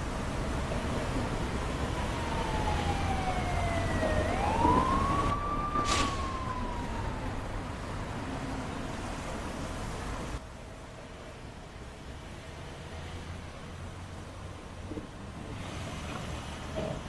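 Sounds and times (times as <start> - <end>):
low traffic rumble: 0.0 - 17.0
ambulance siren wailing: 0.5 - 9.2.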